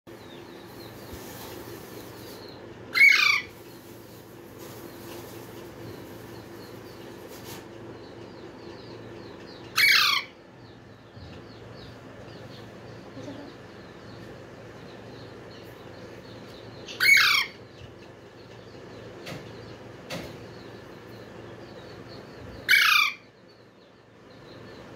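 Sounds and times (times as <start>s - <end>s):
parakeet squawking: 2.9s - 3.6s, 9.7s - 10.4s, 16.8s - 17.7s, 22.6s - 23.3s.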